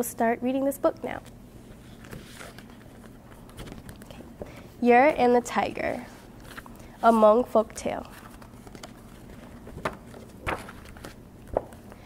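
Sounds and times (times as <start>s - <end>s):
book page turning thumps: 8.3s - 12.0s.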